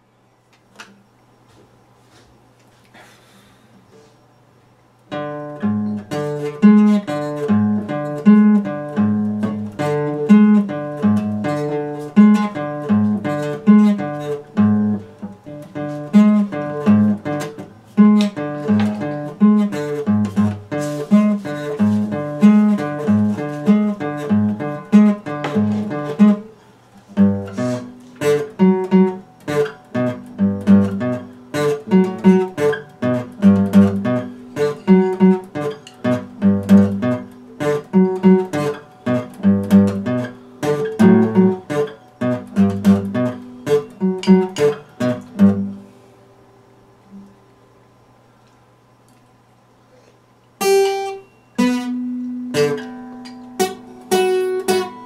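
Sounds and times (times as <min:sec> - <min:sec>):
fingerpicked acoustic guitar: 0:00.9 - 0:55.0.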